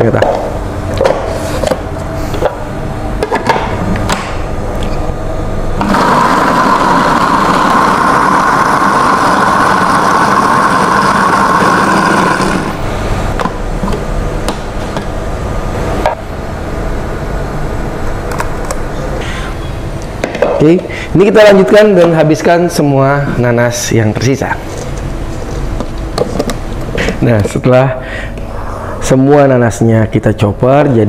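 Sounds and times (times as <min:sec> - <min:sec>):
food processor motor running: 0:05.8 - 0:12.9.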